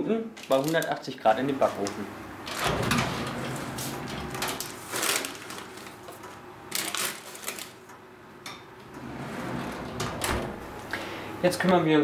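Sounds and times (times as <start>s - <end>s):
baking paper crinkling: 0.3s - 2.1s, 3.6s - 7.9s
oven rack rattling: 2.5s - 5.6s, 9.0s - 10.6s.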